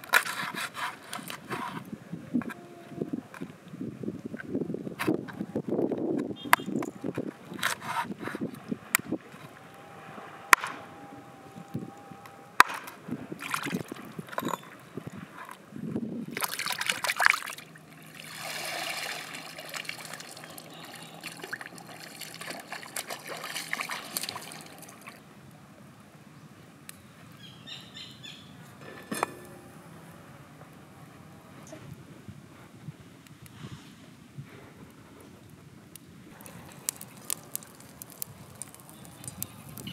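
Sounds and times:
water pouring and trickling: 13.4s - 15.6s, 16.2s - 25.2s, 36.3s - 39.9s.

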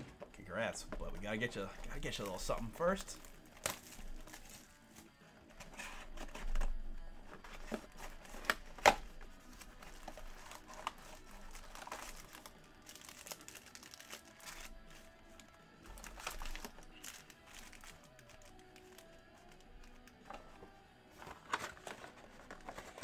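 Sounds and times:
foil packs crinkling: 1.1s - 5.1s, 7.4s - 20.2s.

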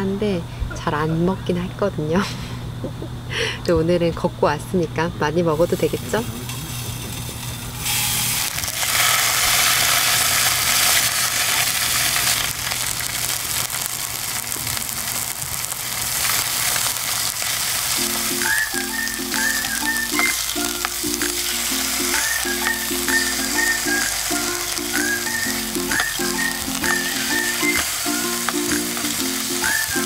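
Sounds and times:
meat sizzling in a pan: 5.7s - 30.0s
light background music: 18.0s - 30.0s.

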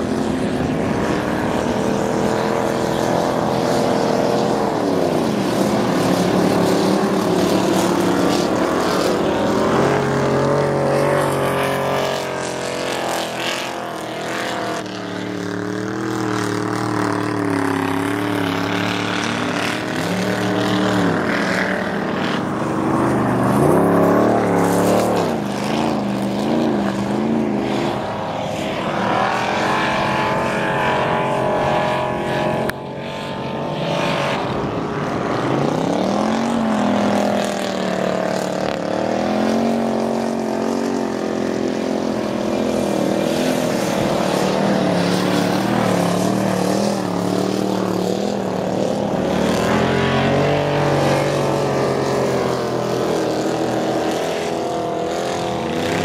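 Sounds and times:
engine revving and wavering: 0.0s - 56.0s
racing car engines: 0.0s - 56.0s.

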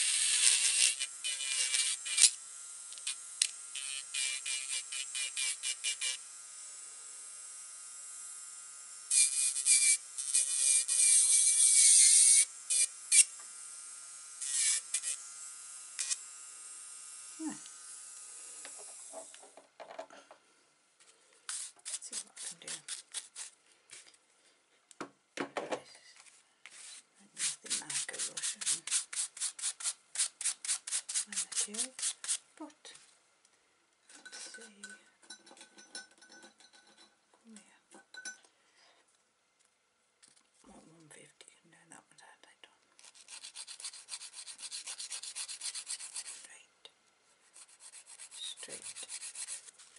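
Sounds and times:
hand nail file rubbing: 0.0s - 3.2s, 3.8s - 6.2s, 9.1s - 13.3s, 14.4s - 15.2s, 21.5s - 24.1s, 26.7s - 32.4s, 43.0s - 46.5s, 47.4s - 49.9s
electric nail drill whining: 0.0s - 19.5s.

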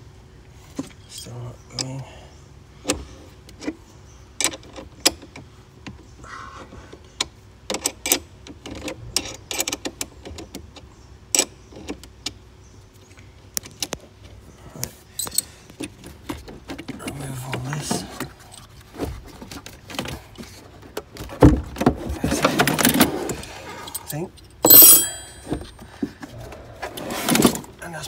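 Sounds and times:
spanner clinking on metal nut: 23.9s - 25.8s.

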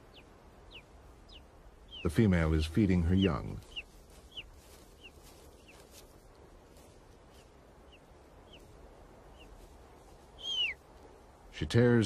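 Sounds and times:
eagle chicks cheeping: 0.0s - 6.0s, 7.4s - 9.6s, 10.3s - 10.8s.

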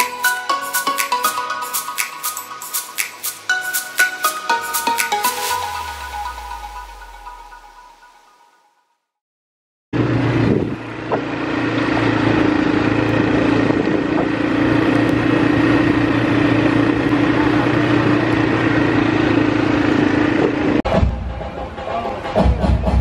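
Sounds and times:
vehicle engine running: 10.0s - 21.8s.

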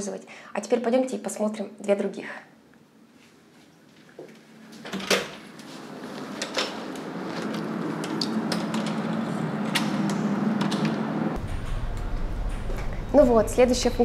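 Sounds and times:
steady hum: 5.6s - 14.0s.

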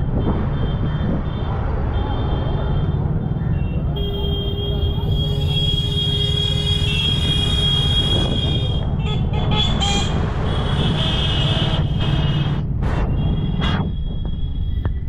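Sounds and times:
motorbike engine and wind rumble: 0.0s - 4.0s, 6.8s - 15.0s
vehicle horns honking: 3.6s - 13.9s.

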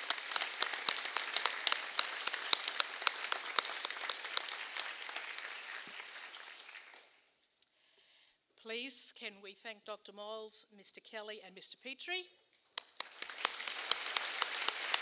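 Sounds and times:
audience applauding: 0.0s - 7.3s, 12.8s - 15.0s.

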